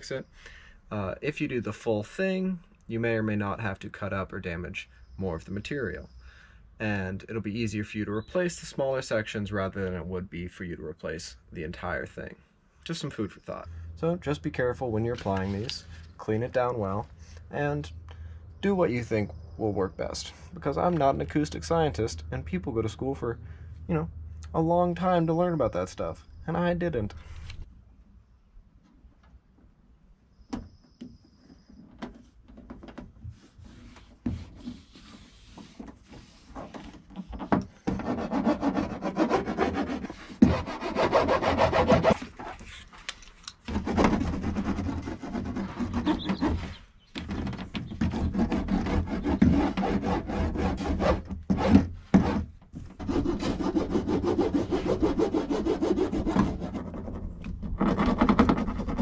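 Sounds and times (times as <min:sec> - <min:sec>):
hand roller rasping on foil mat: 0:37.8 - 0:42.8, 0:43.7 - 0:46.8, 0:47.9 - 0:57.0.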